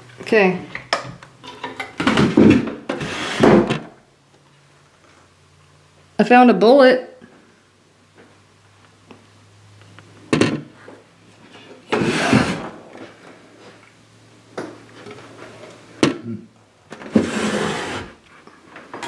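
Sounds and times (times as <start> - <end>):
drawer scraping slides: 2.2 - 3.9, 11.9 - 12.8, 17.0 - 18.2.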